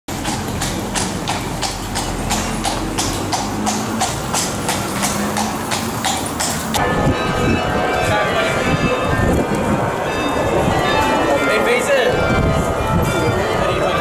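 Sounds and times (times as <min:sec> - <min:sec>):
horse hooves clip-clopping: 0:00.1 - 0:08.2.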